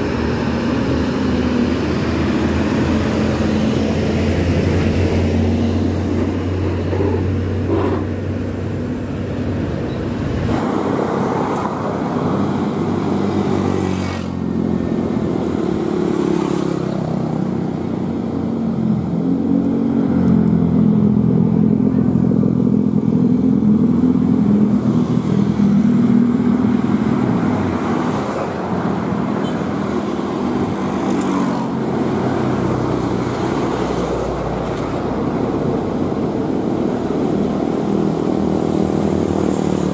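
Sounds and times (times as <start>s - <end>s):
truck diesel engine: 0.0s - 13.7s
motorcycles and cars passing: 0.0s - 39.9s.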